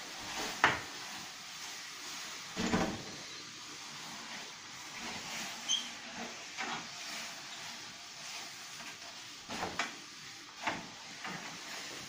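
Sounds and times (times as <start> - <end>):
steady hiss: 0.0 - 12.0
short squeak: 5.7 - 5.9.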